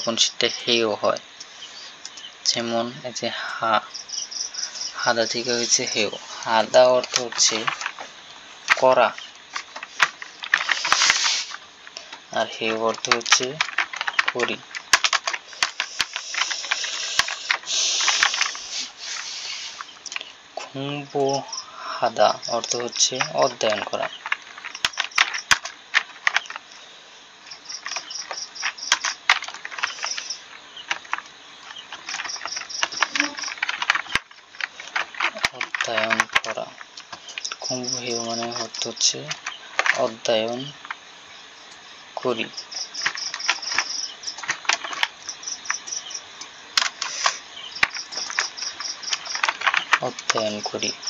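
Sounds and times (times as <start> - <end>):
high rapid chirping: 3.6 - 41.8
keyboard keys clicking: 5.0 - 8.1, 8.7 - 18.6, 22.5 - 26.6, 27.5 - 41.0, 42.2 - 46.1, 46.8 - 51.0.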